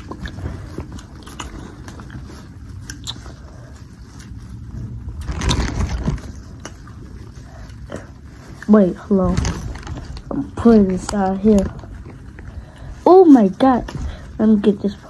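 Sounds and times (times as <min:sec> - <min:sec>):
chewing: 0:00.0 - 0:15.0
plastic bag crinkling: 0:01.1 - 0:07.6, 0:08.2 - 0:15.0
crab legs cracking: 0:05.0 - 0:07.8.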